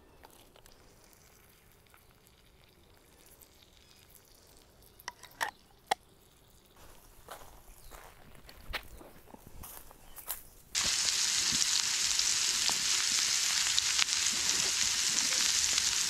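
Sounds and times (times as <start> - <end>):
steak sizzling in a skillet: 10.8 - 16.0.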